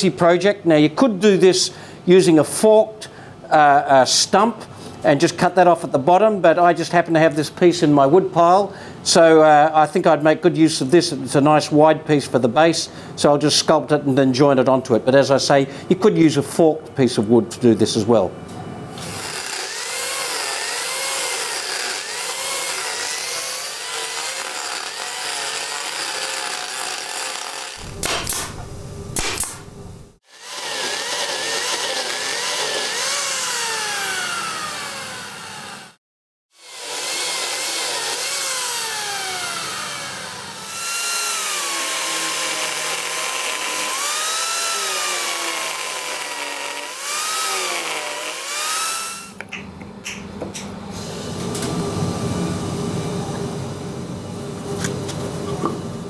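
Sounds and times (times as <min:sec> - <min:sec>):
angle grinder carving wood: 0:19.0 - 0:28.5, 0:30.3 - 0:36.0, 0:36.6 - 0:49.5.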